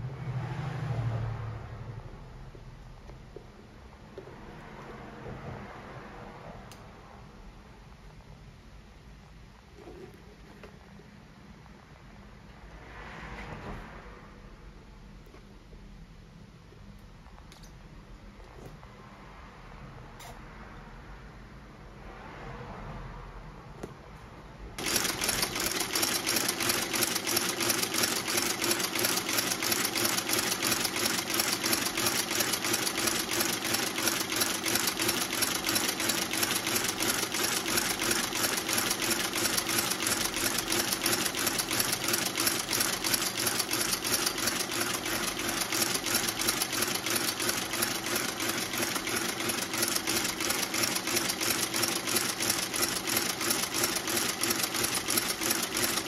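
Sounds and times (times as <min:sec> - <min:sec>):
stitching machine clattering: 0:24.8 - 0:56.0.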